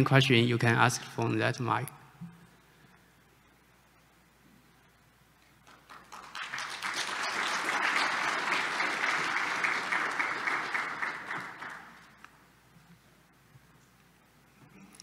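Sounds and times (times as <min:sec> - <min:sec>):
audience applauding: 0:05.6 - 0:12.3.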